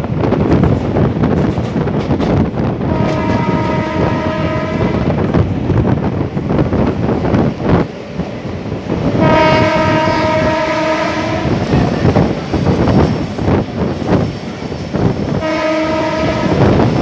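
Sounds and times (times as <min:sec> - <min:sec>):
train wheels clattering over rails: 0:00.0 - 0:17.0
train horn blast: 0:02.8 - 0:05.2, 0:09.2 - 0:11.7, 0:15.3 - 0:16.9.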